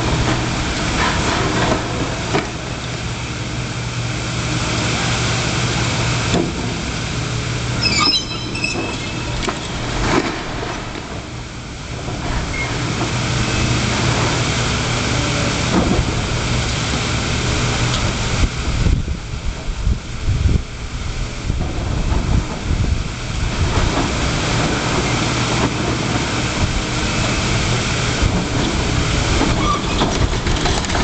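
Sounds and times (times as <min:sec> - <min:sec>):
excavator diesel engine running: 0:00.0 - 0:19.6, 0:21.5 - 0:31.0
high-pitched squeal: 0:07.8 - 0:10.6.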